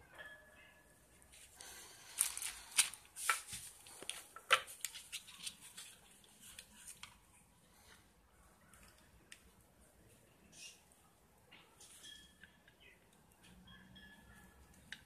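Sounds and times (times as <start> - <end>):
plastic packaging rustling: 1.3 - 7.1.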